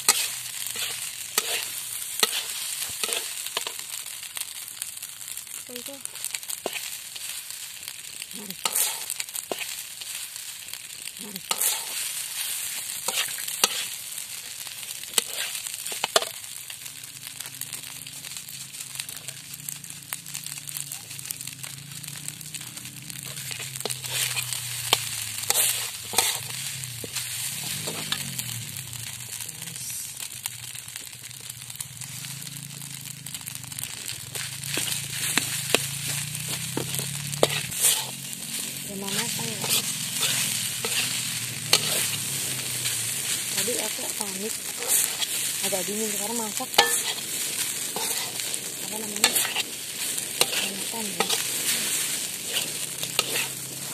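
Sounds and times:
spatula scraping and knocking pan: 0:00.0 - 0:03.8, 0:13.0 - 0:13.9, 0:23.2 - 0:28.3, 0:34.3 - 0:38.2, 0:39.1 - 0:43.8, 0:46.4 - 0:47.3, 0:47.9 - 0:48.5, 0:49.1 - 0:53.9
rice sizzling in a wok: 0:00.0 - 0:53.9.

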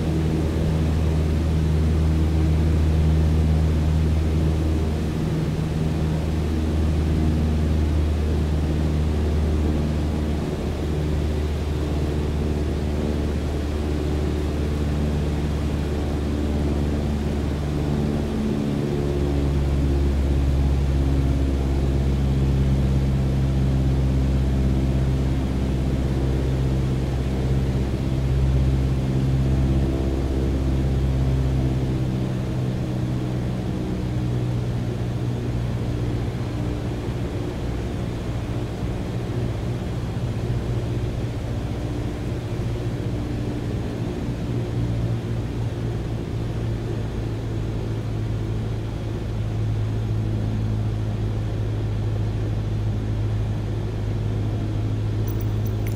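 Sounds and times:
engine drone: 0:49.6 - 0:55.9.

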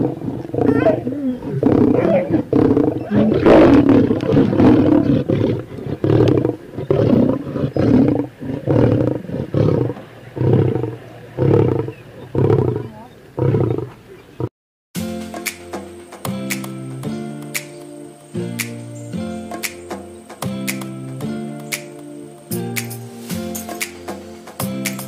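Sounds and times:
lion grunting: 0:00.0 - 0:14.5.

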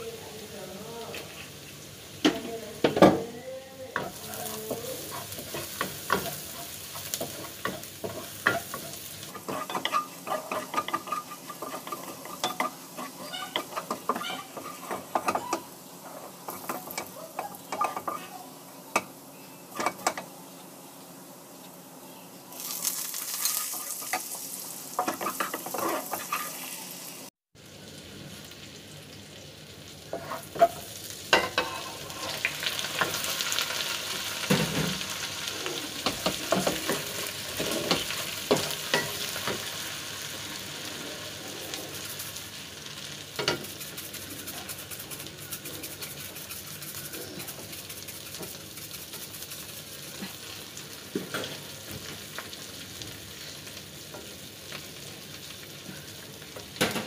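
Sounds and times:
garlic sizzling in wok: 0:00.0 - 0:57.0
wooden spatula scraping pan: 0:04.0 - 0:18.3, 0:25.0 - 0:26.8, 0:31.4 - 0:33.2.

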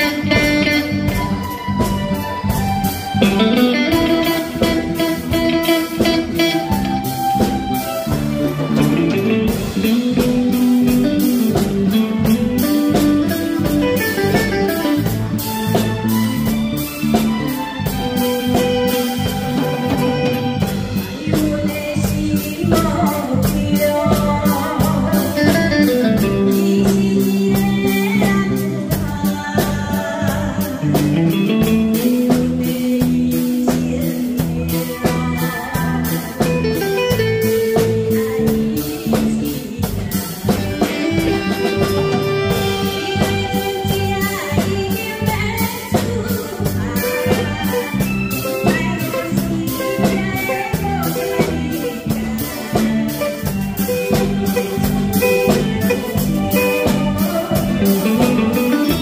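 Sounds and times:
drum kit beat: 0:00.0 - 0:59.0
electric guitar: 0:00.0 - 0:59.0
woman singing into a microphone: 0:00.0 - 0:59.0.

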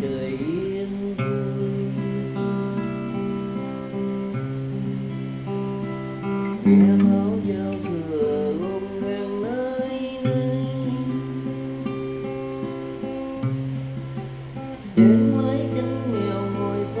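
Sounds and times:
acoustic guitar chords: 0:00.0 - 0:17.0
sliding guitar melody: 0:00.0 - 0:17.0.

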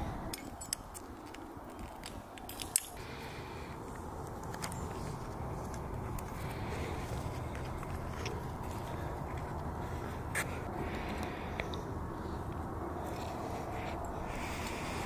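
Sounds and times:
metal climbing gear clinking: 0:00.0 - 0:03.0.

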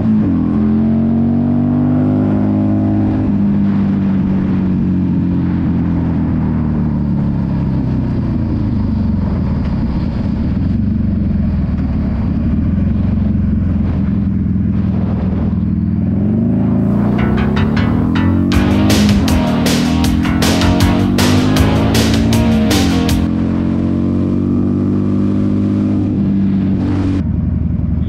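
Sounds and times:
motorcycle engine accelerating: 0:05.7 - 0:27.3.

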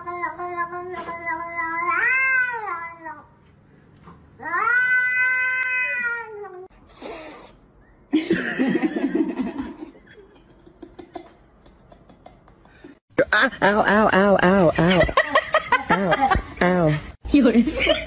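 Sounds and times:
cat meowing: 0:04.4 - 0:06.6.

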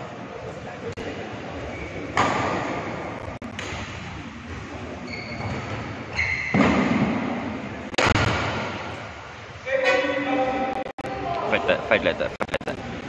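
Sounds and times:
shoes squeaking on court: 0:04.5 - 0:06.8
loud racket hits: 0:06.5 - 0:09.0.

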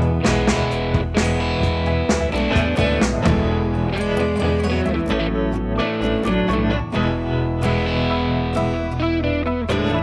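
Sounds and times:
guitar music: 0:00.0 - 0:10.0.

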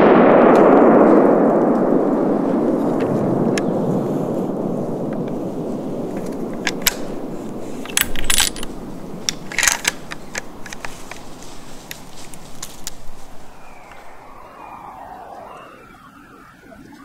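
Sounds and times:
low rumbling noise: 0:00.0 - 0:17.0
metallic clicks and rattles: 0:06.1 - 0:07.1, 0:07.8 - 0:11.3.

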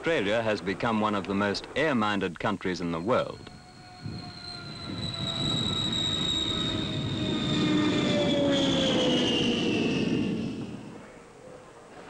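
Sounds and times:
propeller plane engines whining: 0:02.7 - 0:11.6.

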